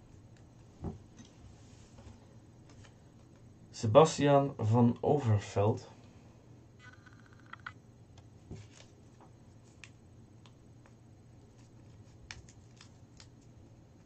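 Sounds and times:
low steady hum: 0.0s - 14.0s
paper rustling: 8.5s - 10.0s, 11.4s - 13.5s.

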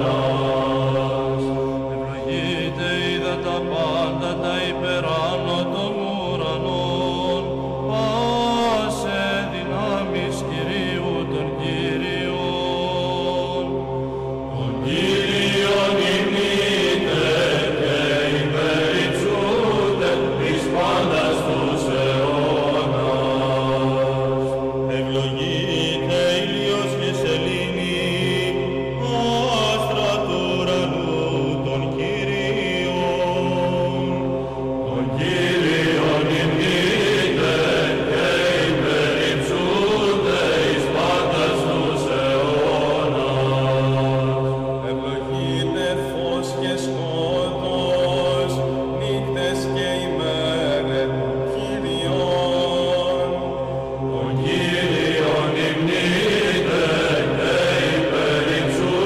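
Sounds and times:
chant melody: 0.0s - 59.0s
held vocal drone: 0.0s - 59.0s
voices chanting melody: 34.8s - 45.8s, 54.1s - 59.0s.

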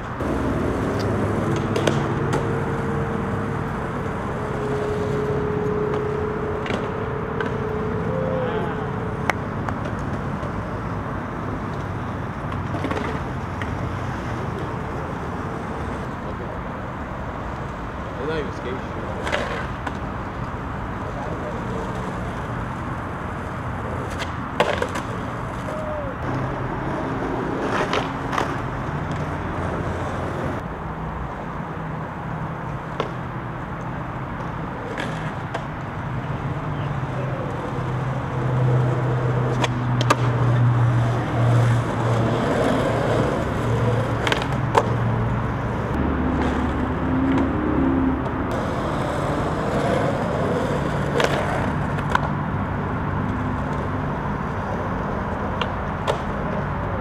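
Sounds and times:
skateboard wheels rolling on pavement: 0.0s - 57.0s
skateboard clacks: 0.2s - 2.9s, 11.6s - 15.0s, 19.0s - 30.6s, 32.8s - 46.6s, 48.5s - 52.4s, 53.2s - 57.0s.

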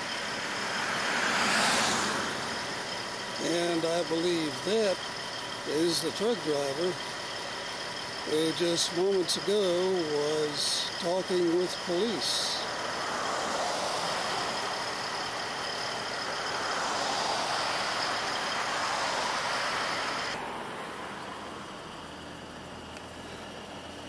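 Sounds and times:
semi truck engine hissing: 0.0s - 24.0s.

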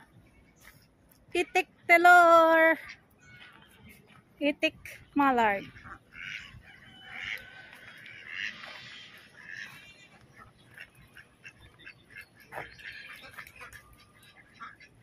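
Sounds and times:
ducks quacking: 4.8s - 15.0s.

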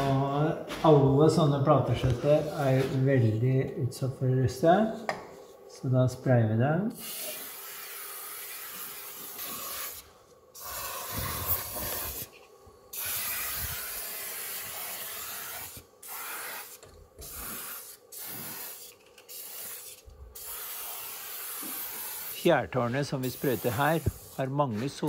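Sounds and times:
aerosol can spraying: 7.0s - 12.3s, 12.9s - 24.6s.

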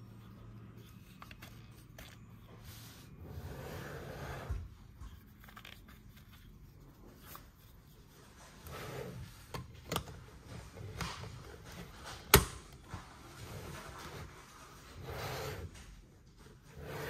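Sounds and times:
hard plastic toy parts rubbing: 0.0s - 12.4s.

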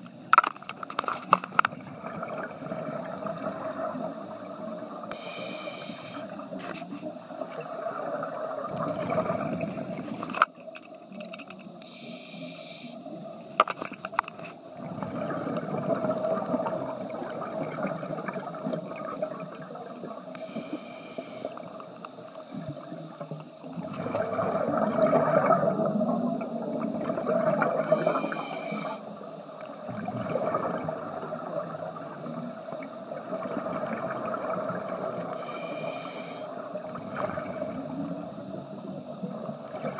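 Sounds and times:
exhaled bubbles gurgling: 1.7s - 6.6s, 7.2s - 10.3s, 14.7s - 20.7s, 21.5s - 39.9s
regulator breath hiss: 3.9s - 6.5s, 11.8s - 13.0s, 20.3s - 21.7s, 27.8s - 29.1s, 35.3s - 37.9s.

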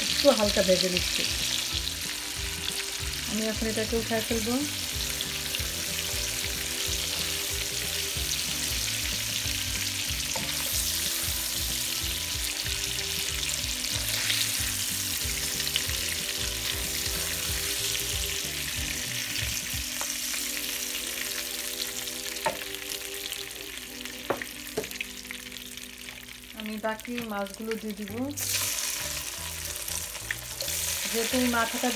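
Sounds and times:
fish sizzling in a pan: 0.0s - 31.9s
spatula in a pan: 3.8s - 21.0s, 28.4s - 31.9s.

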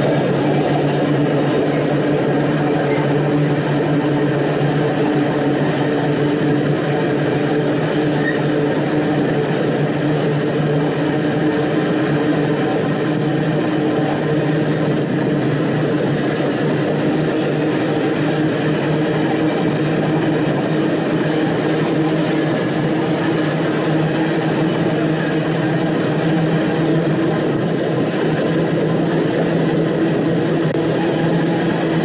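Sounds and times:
freight train wheels on track: 0.0s - 32.0s.

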